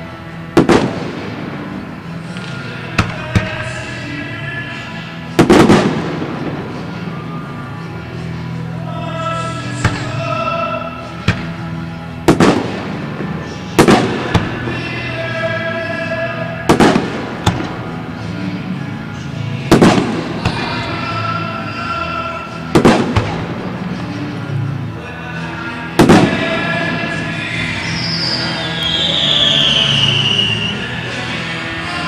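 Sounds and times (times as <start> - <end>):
music playing: 0.0 - 32.0
fireworks shells booming: 5.4 - 6.8, 11.2 - 14.7, 16.7 - 18.0, 19.7 - 20.8, 22.7 - 23.8.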